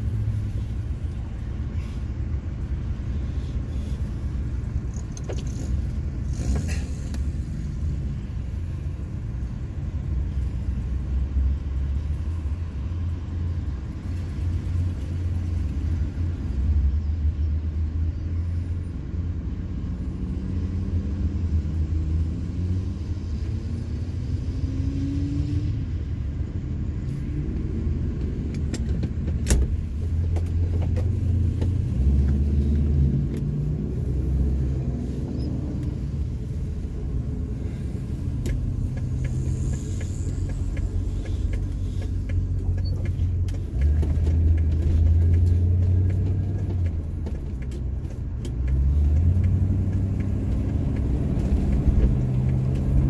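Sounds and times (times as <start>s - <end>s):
car engine idling: 0.0s - 16.1s, 36.1s - 53.0s.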